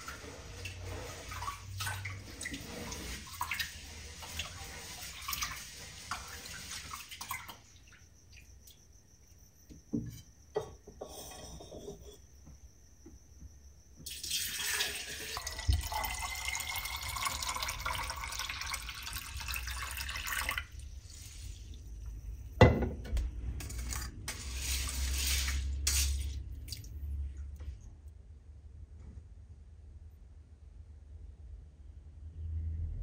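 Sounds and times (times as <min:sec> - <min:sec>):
water pouring into a pitcher: 0:14.1 - 0:21.8.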